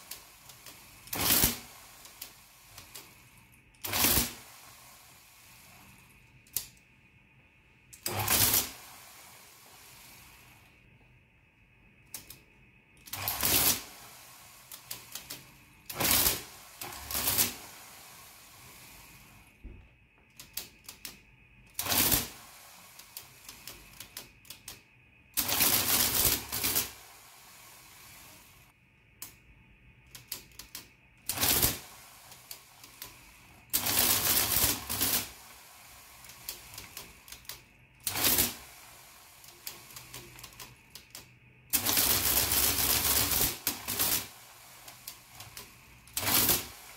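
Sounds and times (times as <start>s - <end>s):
printing mechanism clattering: 0.0s - 4.4s, 20.3s - 27.0s, 30.1s - 35.5s, 36.2s - 38.7s, 39.4s - 46.9s.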